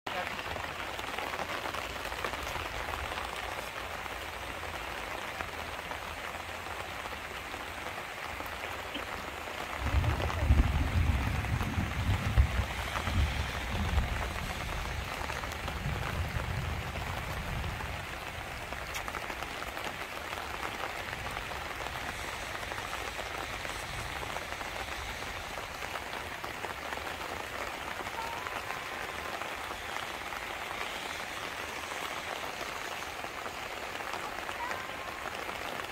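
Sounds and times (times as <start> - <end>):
rain falling on leaves: 0.1 - 35.9
low rumble on microphone: 9.8 - 18.0.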